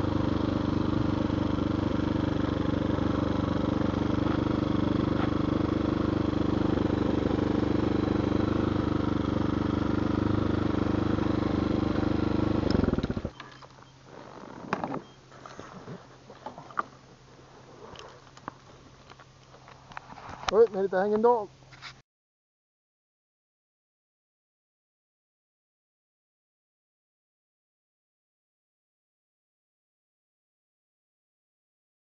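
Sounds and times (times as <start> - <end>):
motorcycle engine running: 0.0 - 15.3.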